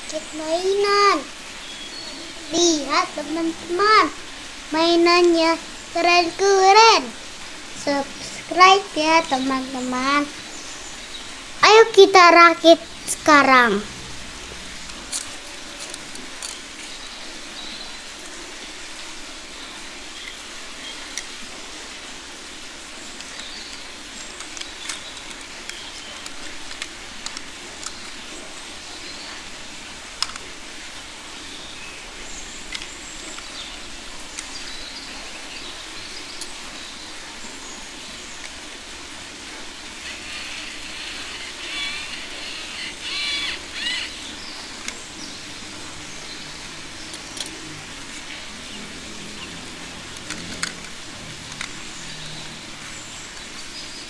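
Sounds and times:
steady background hiss: 0:00.0 - 0:54.0
plastic toy parts clicking: 0:14.8 - 0:16.7, 0:23.2 - 0:28.2, 0:30.2 - 0:30.5, 0:47.1 - 0:47.6, 0:50.2 - 0:51.9.

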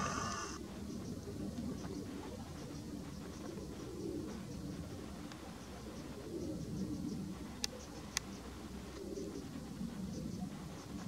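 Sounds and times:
bird cooing: 0:00.0 - 0:00.6.

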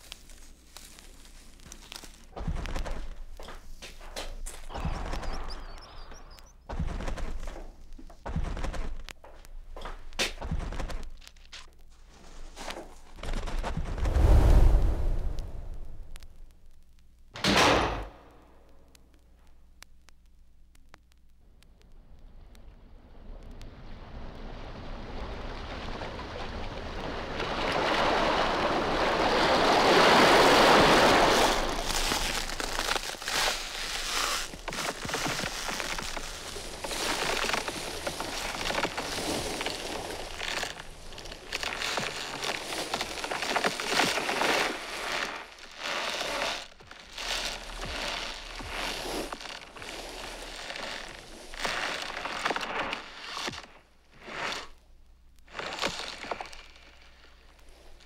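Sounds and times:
rushing crackly hiss: 0:00.0 - 0:06.5, 0:18.6 - 0:58.0
thuds of people moving: 0:02.3 - 0:03.7, 0:06.7 - 0:11.3
low rumble: 0:13.7 - 0:16.8.

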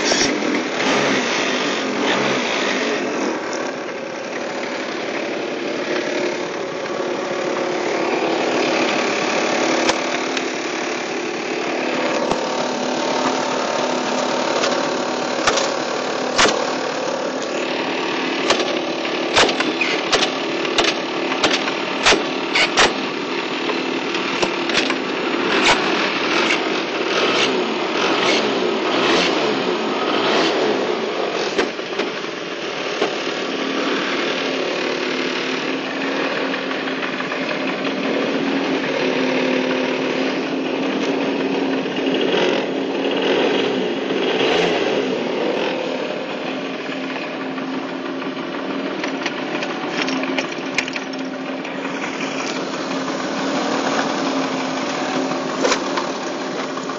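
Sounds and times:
scooter engine running: 0:00.0 - 0:56.9
sharp clicks and knocks: 0:15.4 - 0:15.8, 0:16.4 - 0:16.6, 0:18.4 - 0:23.0, 0:23.7 - 0:25.0, 0:31.5 - 0:32.2, 0:49.0 - 0:51.3.

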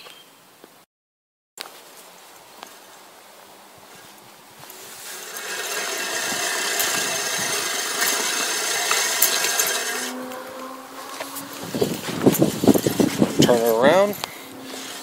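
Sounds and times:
reel mower blades whirring: 0:03.9 - 0:15.0.

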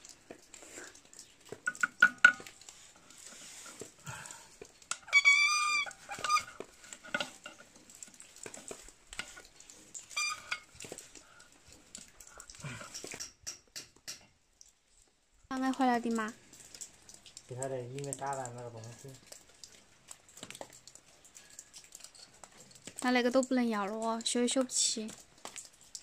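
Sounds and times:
high-pitched animal cry: 0:05.1 - 0:06.5.

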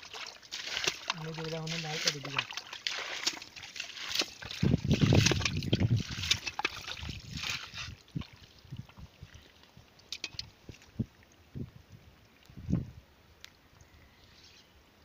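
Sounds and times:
splashing in muddy water: 0:00.0 - 0:11.3.

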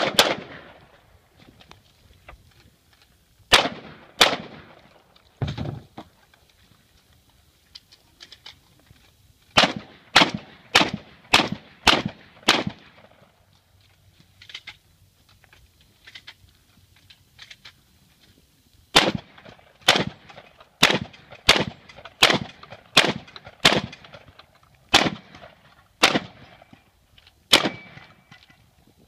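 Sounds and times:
pistol shots: 0:00.0 - 0:00.8, 0:03.5 - 0:04.8, 0:09.6 - 0:13.2, 0:19.0 - 0:24.2, 0:24.9 - 0:26.7, 0:27.5 - 0:28.3.

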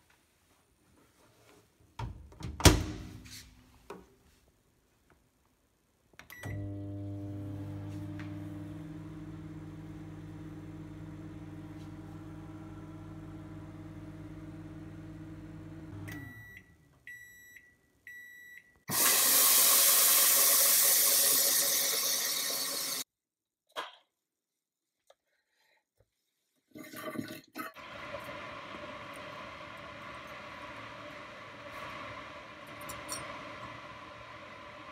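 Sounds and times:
microwave button beep: 0:06.3 - 0:06.8, 0:16.0 - 0:18.7
microwave beeps: 0:06.3 - 0:08.5, 0:15.8 - 0:18.8
microwave oven humming: 0:06.4 - 0:16.5.

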